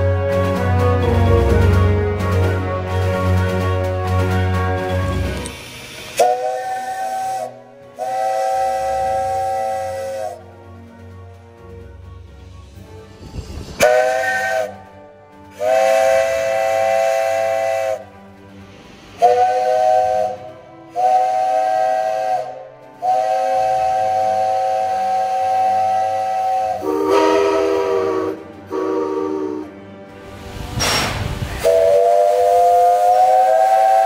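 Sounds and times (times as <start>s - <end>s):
steam hissing: 0.0s - 10.4s, 12.2s - 34.0s
chime steam whistle blasts: 0.0s - 11.4s, 12.0s - 29.9s, 30.8s - 34.0s.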